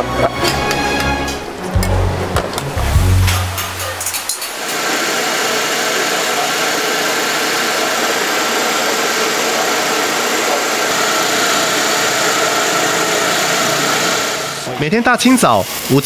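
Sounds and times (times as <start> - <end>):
electric rice mill grinding: 4.3 - 14.8.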